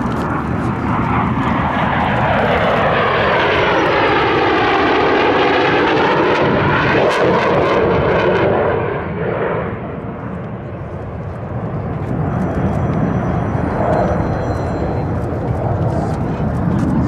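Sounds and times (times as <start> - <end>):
jet planes flying past: 0.0 - 17.0.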